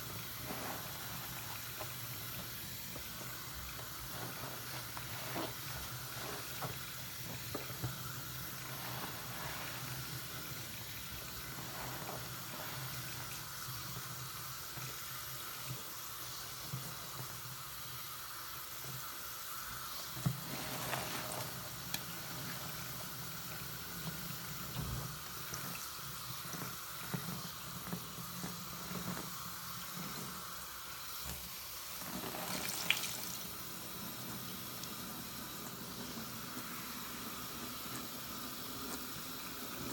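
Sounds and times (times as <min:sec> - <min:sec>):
wet sponge squelches: 0:00.0 - 0:15.7, 0:19.9 - 0:30.6, 0:31.7 - 0:35.0
faucet running into sink: 0:00.0 - 0:39.9.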